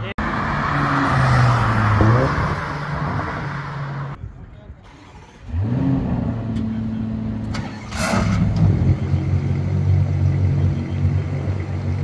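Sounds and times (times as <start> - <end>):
car engine starting and idling: 4.8 - 12.0.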